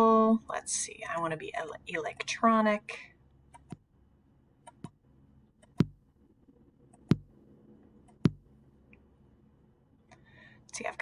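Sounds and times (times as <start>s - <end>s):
low electronic drum hits: 7.1s - 7.4s, 8.2s - 8.5s.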